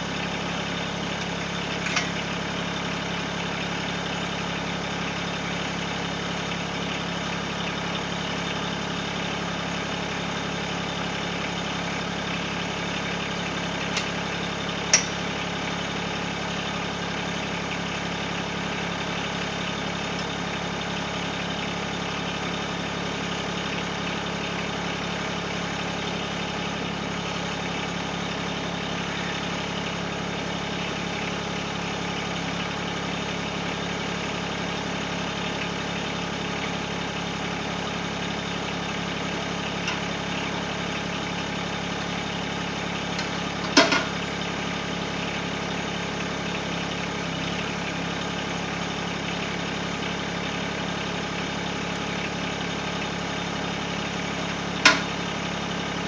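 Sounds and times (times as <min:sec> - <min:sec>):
tractor diesel engine idling: 0:00.0 - 0:56.0
sharp knocks: 0:54.9 - 0:55.1.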